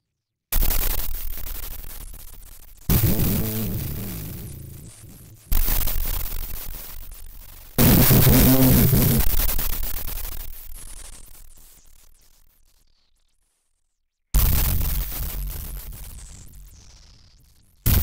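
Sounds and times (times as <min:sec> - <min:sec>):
warbling low synth tone: 0:02.9 - 0:05.6
noisy synthesizer glitch hits: 0:02.9 - 0:06.5, 0:07.8 - 0:09.6.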